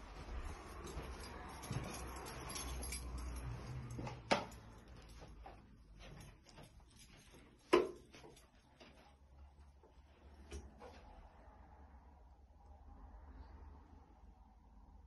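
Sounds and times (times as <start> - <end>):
faint footsteps: 0.0 - 11.5.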